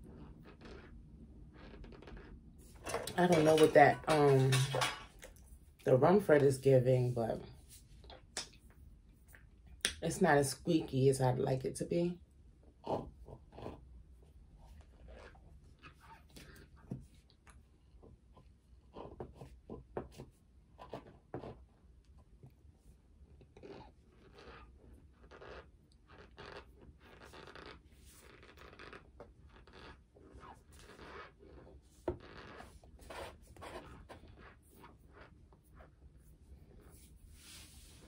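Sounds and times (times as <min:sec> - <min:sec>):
chewing crunches and squeaks: 0:00.0 - 0:02.4, 0:23.4 - 0:32.6.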